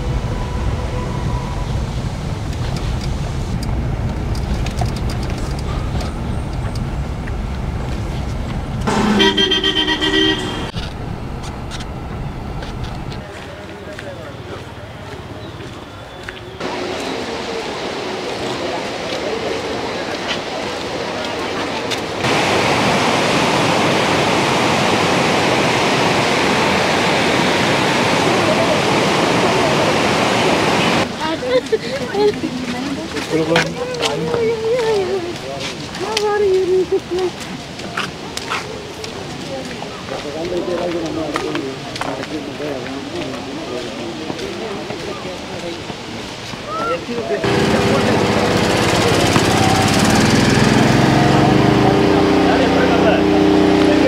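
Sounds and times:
rushing water: 0.0s - 54.0s
vehicle rumbling on road: 0.0s - 54.0s
vehicle horn: 8.9s - 11.2s.

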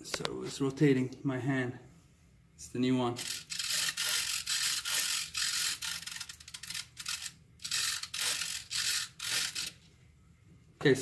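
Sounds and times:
servo buzzing in short bursts: 3.2s - 9.8s.

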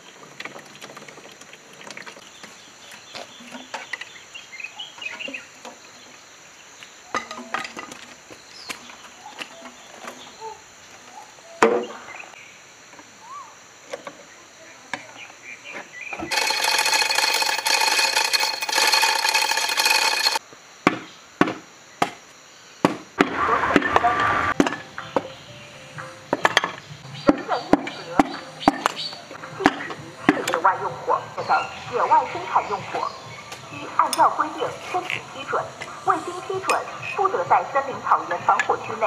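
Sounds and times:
loud metal rattling: 16.3s - 20.4s.

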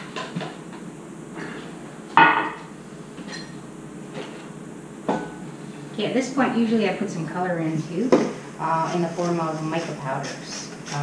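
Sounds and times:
flour sifter rasping: 8.6s - 11.0s.

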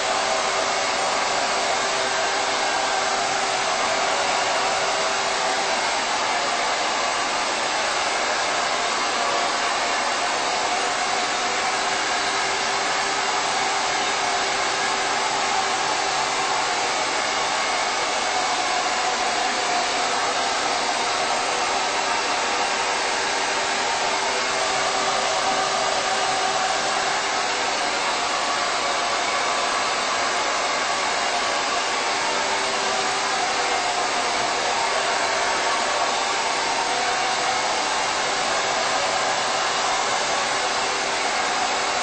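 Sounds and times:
hair dryer blowing air: 0.0s - 42.0s.

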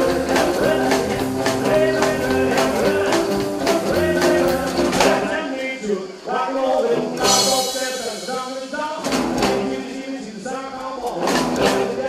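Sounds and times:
upright double bass: 0.0s - 5.4s, 6.9s - 7.8s, 9.1s - 9.8s, 11.2s - 12.0s
rockabilly band playing live: 0.0s - 5.9s, 6.5s - 12.0s.

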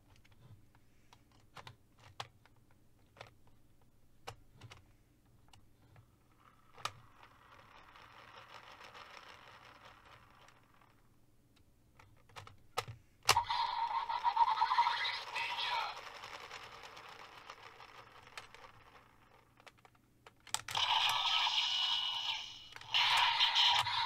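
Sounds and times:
plastic toy parts clicking: 5.5s - 10.9s, 12.0s - 14.2s, 14.9s - 24.0s
faint toy spinning whir: 5.7s - 11.1s, 13.3s - 20.0s, 20.6s - 24.0s.

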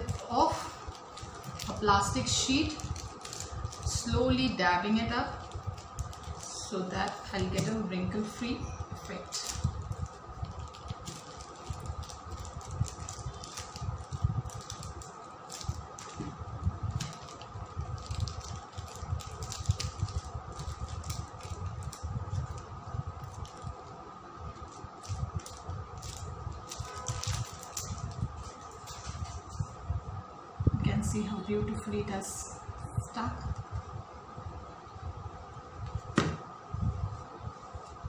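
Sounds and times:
plastic sheet crinkling: 0.0s - 29.8s.

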